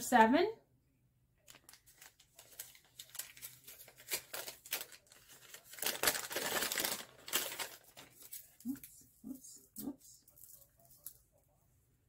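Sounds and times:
paper bag crinkling and tearing: 0:01.5 - 0:08.9.

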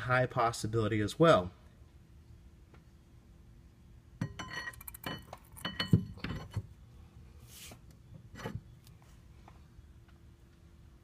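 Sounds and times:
metal tool clinking: 0:04.2 - 0:06.6.

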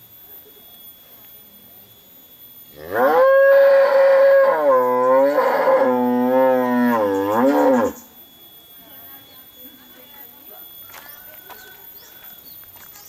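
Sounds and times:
cow mooing: 0:02.8 - 0:08.0.

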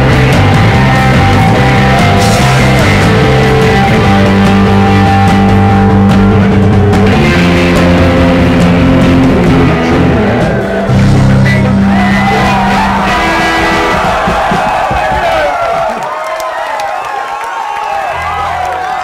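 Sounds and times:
electric guitar: 0:00.0 - 0:14.7
live rock band playing: 0:00.0 - 0:15.5.

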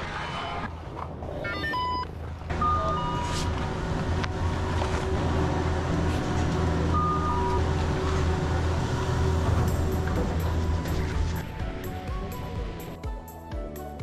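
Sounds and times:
machinery low hum: 0:01.8 - 0:13.0
two-note electronic beep: 0:02.6 - 0:03.3.

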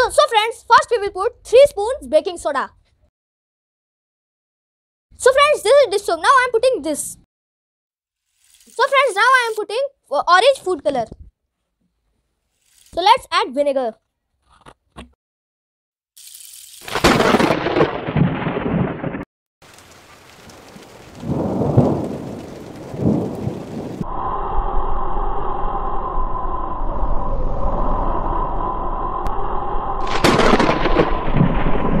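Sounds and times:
thunder-like rumbling booms: 0:17.0 - 0:19.3, 0:20.7 - 0:32.0
humming rumble: 0:24.0 - 0:32.0
loud blast: 0:30.0 - 0:32.0.

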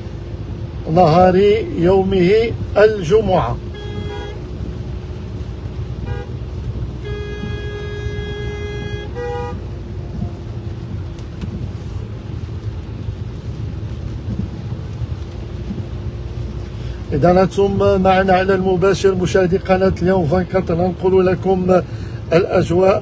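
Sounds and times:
car interior road rumble: 0:00.0 - 0:23.0
car horns honking: 0:03.6 - 0:04.8, 0:05.9 - 0:10.5.

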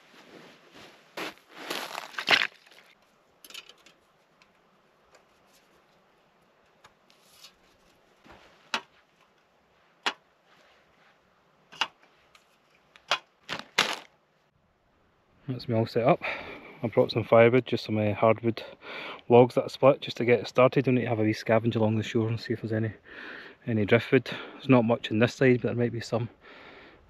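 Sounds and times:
camping gear rustling: 0:00.0 - 0:14.2.

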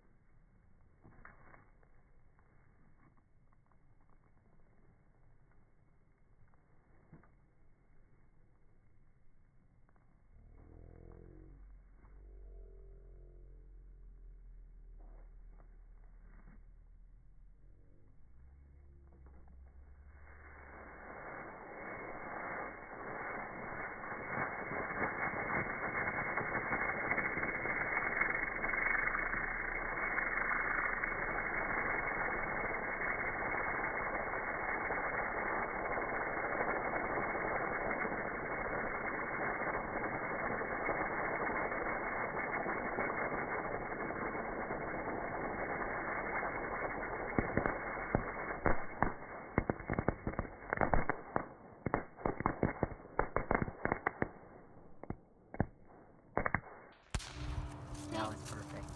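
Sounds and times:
firework hissing: 0:19.5 - 0:54.9, 0:56.4 - 0:58.9
firework pops and cracks: 0:20.4 - 0:58.9.

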